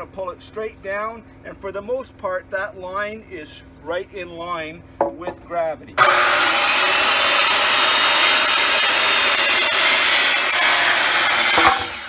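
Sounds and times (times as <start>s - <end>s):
circular saw cutting wood: 6.0s - 12.0s.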